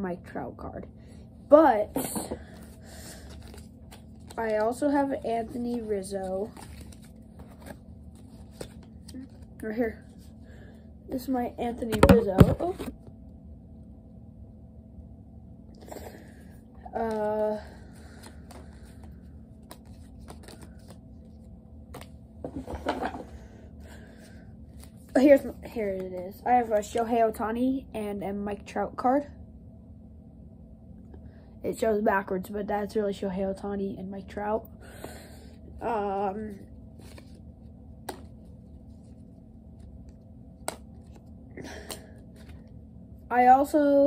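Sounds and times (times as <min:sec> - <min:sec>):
cards rustling: 0:02.0 - 0:10.2, 0:17.0 - 0:23.1, 0:37.0 - 0:37.4, 0:38.0 - 0:42.8
cards clicking against cards: 0:19.6 - 0:21.0, 0:38.1 - 0:38.3, 0:40.6 - 0:41.2
cards flicking and clicking: 0:19.6 - 0:21.0, 0:38.0 - 0:38.4, 0:40.0 - 0:42.6
sharp card snaps: 0:38.0 - 0:38.3, 0:40.6 - 0:41.2.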